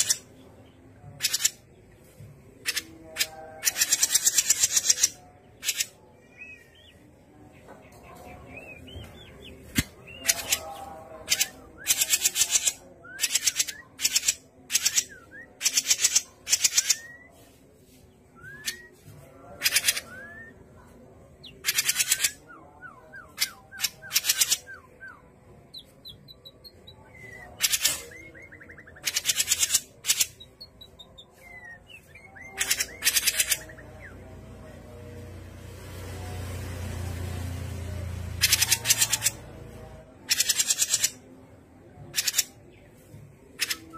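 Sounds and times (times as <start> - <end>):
songbird harsh rattling calls: 38.4 - 39.4.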